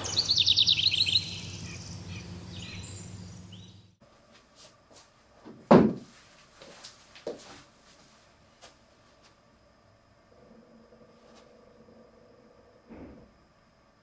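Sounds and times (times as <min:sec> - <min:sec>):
bird-like chirps: 0:00.0 - 0:03.9
steady low hum: 0:00.0 - 0:14.0
dull thump: 0:05.6 - 0:06.1.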